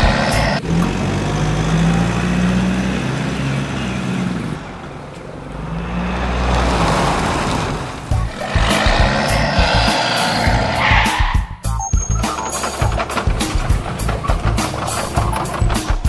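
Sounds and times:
truck engine running: 0.0s - 16.0s.

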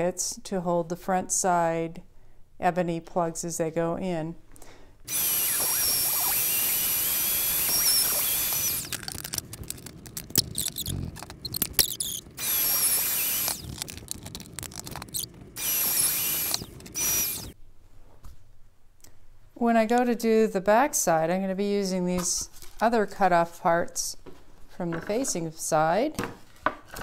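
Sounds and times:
router whining: 5.1s - 17.6s
handling clicks and knocks: 8.8s - 12.4s.

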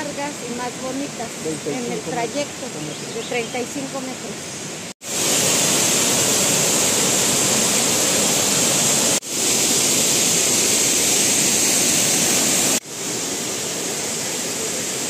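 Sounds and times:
waterfall rushing: 3.8s - 15.0s.

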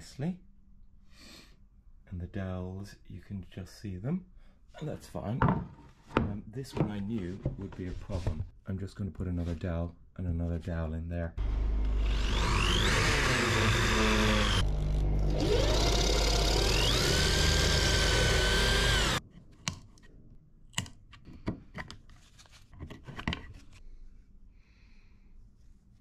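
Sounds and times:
power drill boring into wood: 11.4s - 19.2s.

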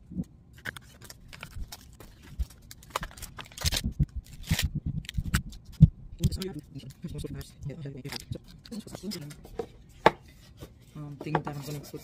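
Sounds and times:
vinyl peeling with crackles: 0.6s - 9.4s.

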